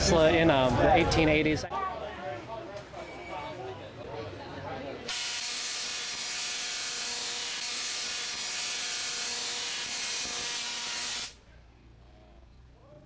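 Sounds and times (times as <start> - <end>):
tesla coil sparks buzzing: 5.1 - 11.4.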